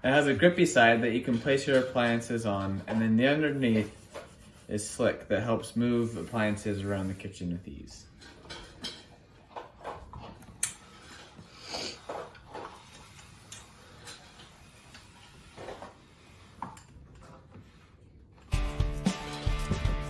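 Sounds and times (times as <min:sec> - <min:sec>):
steel bowl and whisk rattling: 0:00.6 - 0:03.8
guitar music: 0:18.5 - 0:20.0.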